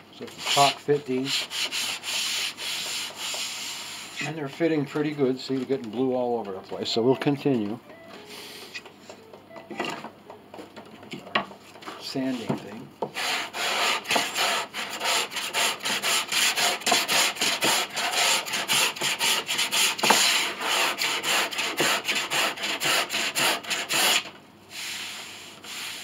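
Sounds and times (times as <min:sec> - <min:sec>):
hand sanding wood: 0:00.3 - 0:04.8, 0:13.1 - 0:26.0.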